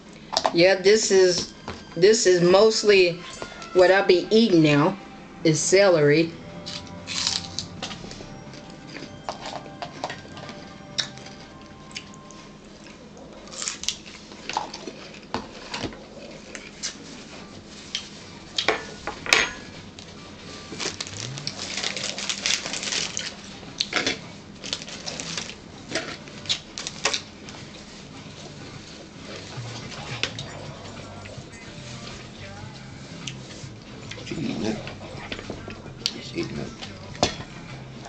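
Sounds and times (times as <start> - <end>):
paper napkin rustling: 16.4 - 18.6.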